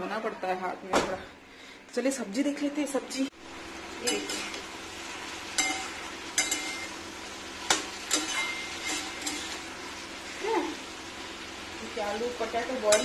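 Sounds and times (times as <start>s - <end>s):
vegetables sizzling in a pan: 2.8s - 13.0s
metal spatula clinking and scraping: 5.6s - 6.9s, 8.0s - 9.6s.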